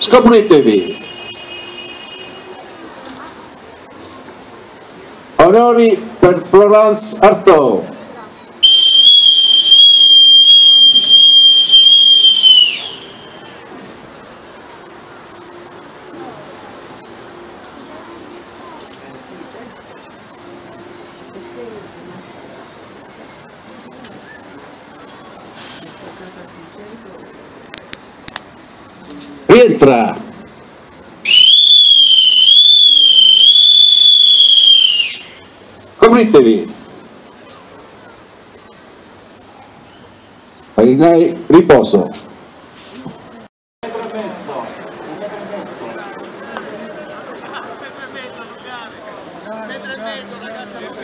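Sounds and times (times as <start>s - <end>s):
high whistle pipe note: 8.6s - 13.7s, 31.3s - 35.5s.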